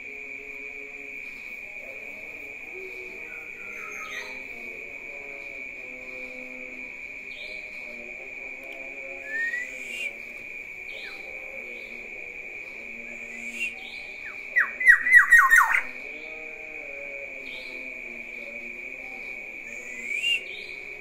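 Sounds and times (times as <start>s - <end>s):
bird rising whistle: 9.2s - 10.2s, 19.7s - 20.6s.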